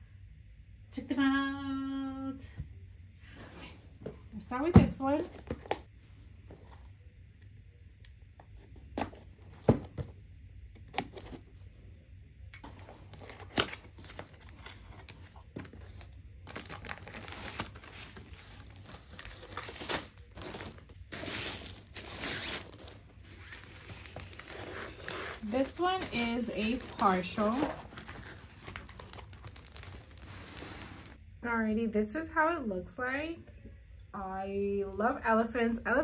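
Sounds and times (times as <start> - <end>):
packaging rustling and crinkling: 12.6 - 31.2.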